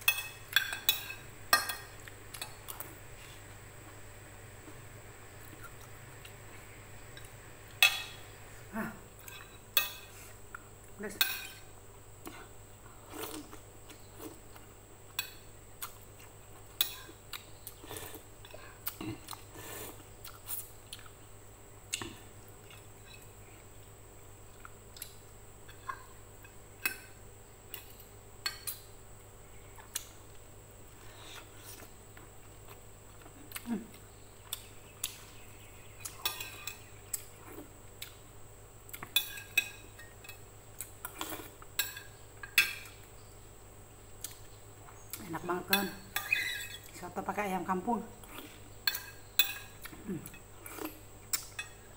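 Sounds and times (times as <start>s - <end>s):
mouth sounds of eating: 8.5s - 9.6s, 30.9s - 35.4s, 49.8s - 51.5s.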